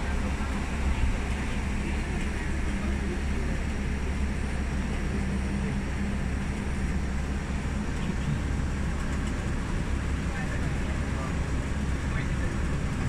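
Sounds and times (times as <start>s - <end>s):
tram running hum and rumble: 0.0s - 13.0s.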